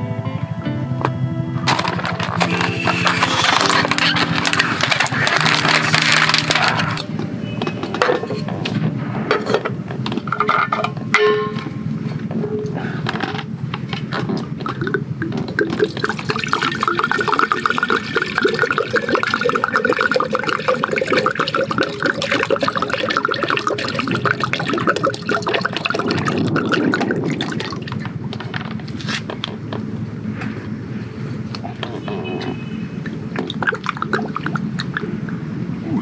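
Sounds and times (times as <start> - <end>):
water pouring into a pot: 15.5 - 28.1.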